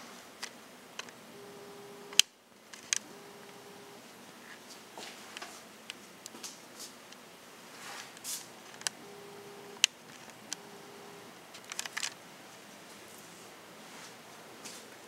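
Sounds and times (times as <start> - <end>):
faint hum: 0.0 - 15.0
camera handling clicks and rustles: 2.1 - 3.0, 11.6 - 12.2.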